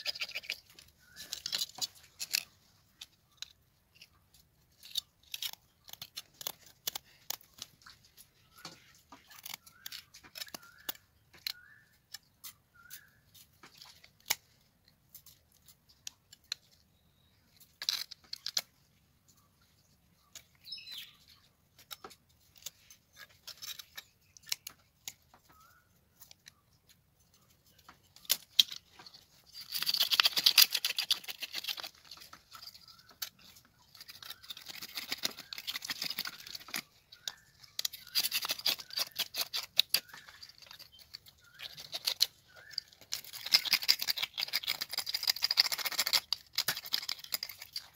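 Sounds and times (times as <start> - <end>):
fish scales being scraped: 28.2 - 47.9.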